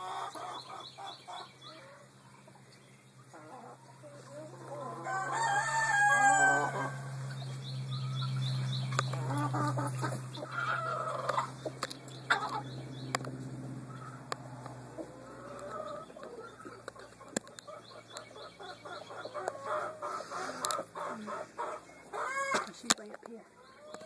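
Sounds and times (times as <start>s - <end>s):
chickens clucking: 0.0s - 24.0s
chicken long drawn-out call: 3.4s - 7.2s, 9.1s - 11.5s, 18.7s - 22.6s.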